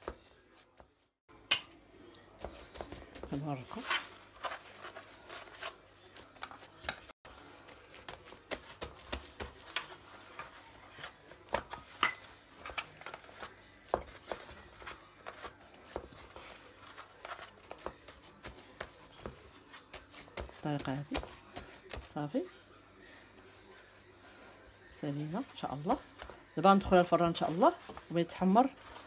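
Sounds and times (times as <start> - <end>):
hands patting pastry: 2.2 - 22.2.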